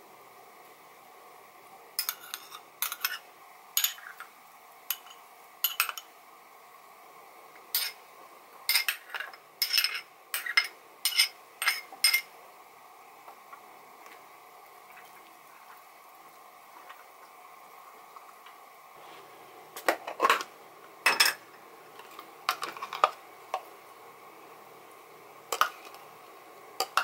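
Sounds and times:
ceramic bowls clinking: 8.7s - 12.3s, 21.0s - 21.4s.

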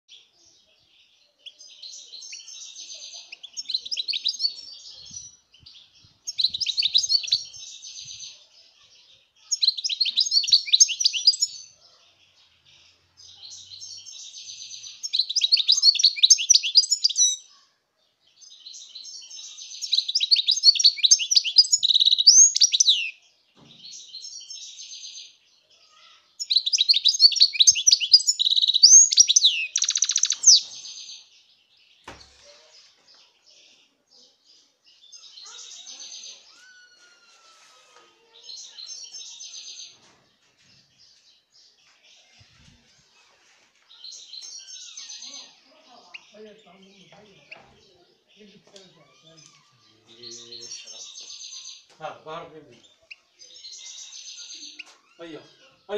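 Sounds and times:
goldfinch twittering and trilling: 1.7s - 8.4s, 9.5s - 11.8s, 12.7s - 17.5s, 18.7s - 23.2s, 26.4s - 31.3s.

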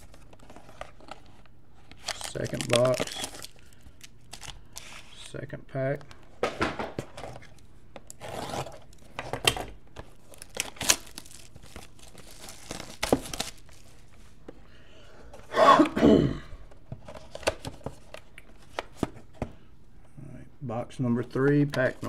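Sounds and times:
cardboard scraping: 8.2s - 8.8s.

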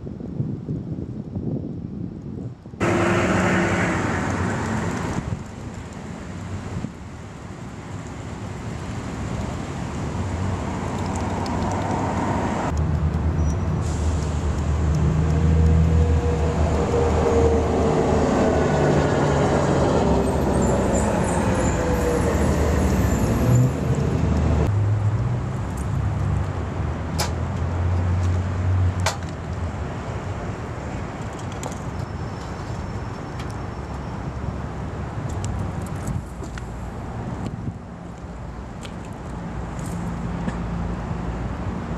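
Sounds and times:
road vehicle passing: 2.8s - 41.9s.

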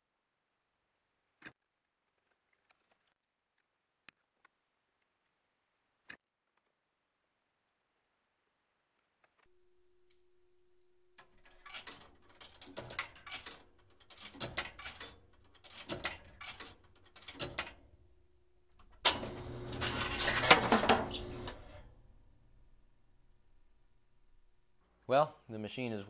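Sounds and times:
coins clinking and rattling: 10.0s - 18.2s, 18.8s - 24.6s
vending motor humming: 11.0s - 24.8s.

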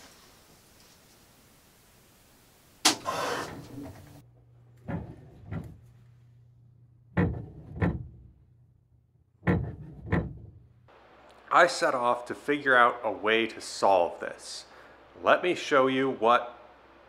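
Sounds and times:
sharp knocks in pipes: 4.8s - 5.8s, 7.1s - 8.3s, 9.4s - 10.6s.

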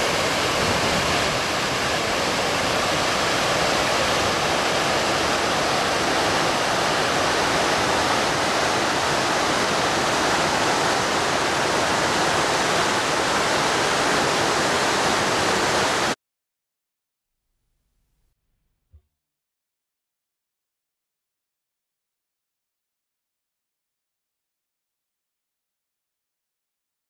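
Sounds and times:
waterfall roaring: 0.0s - 16.2s.

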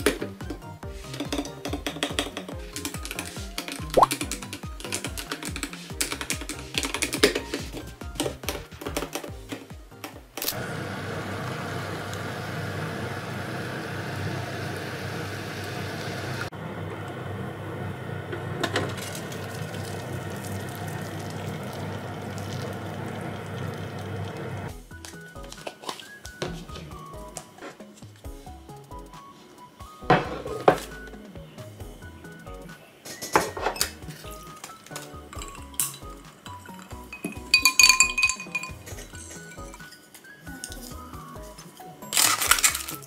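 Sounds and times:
background music: 0.0s - 10.6s, 24.6s - 43.0s
cooktop low hum: 5.8s - 31.2s
water simmering: 13.9s - 24.7s
drinking glass clinking: 35.3s - 40.0s
glass pan lid clink: 37.2s - 38.8s.

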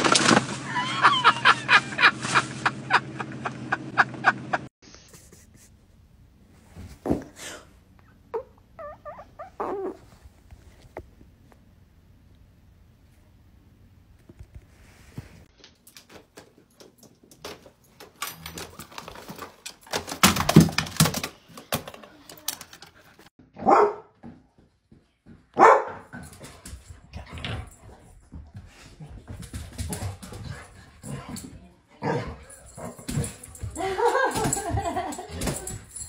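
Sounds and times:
knocks and clatter: 16.2s - 23.0s
dog barking: 23.6s - 24.2s, 25.6s - 26.1s, 32.0s - 32.4s.

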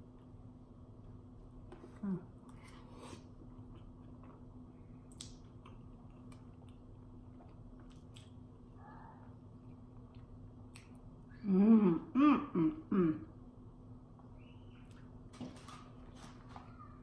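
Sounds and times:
steady low hum: 0.0s - 17.0s
chewing mouth sounds: 3.5s - 8.5s.

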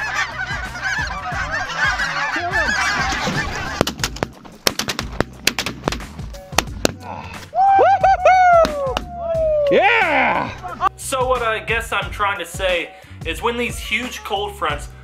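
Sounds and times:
geese calling: 0.0s - 5.7s.

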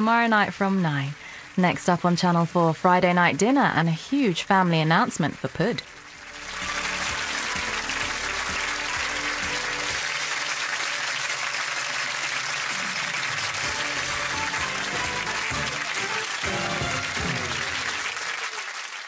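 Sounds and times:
audience applauding: 5.8s - 19.0s
theme music: 5.9s - 18.6s.

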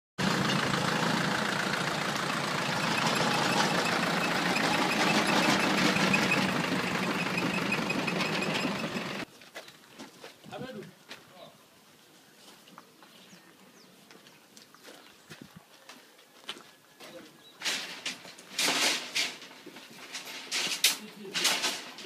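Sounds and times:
engine machine knocking: 0.2s - 9.2s.

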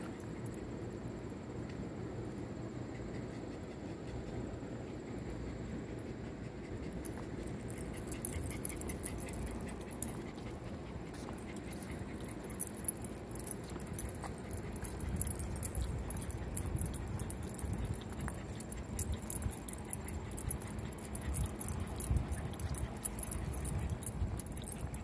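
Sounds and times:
low background noise: 0.0s - 25.0s
dog nails ticking on wood: 6.7s - 25.0s
dog tags jingling: 6.9s - 25.0s.

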